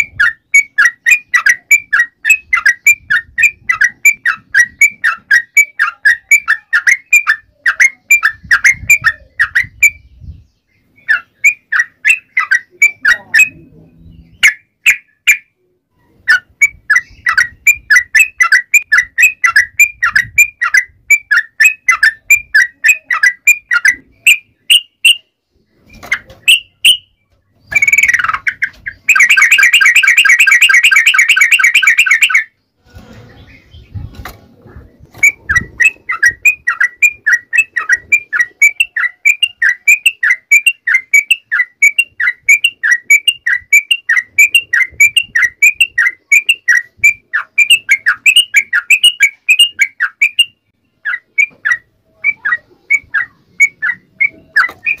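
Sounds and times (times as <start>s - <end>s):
bulbul chattering trill: 0.0s - 10.1s, 10.9s - 15.5s, 16.1s - 25.3s, 26.0s - 32.6s, 35.1s - 55.0s.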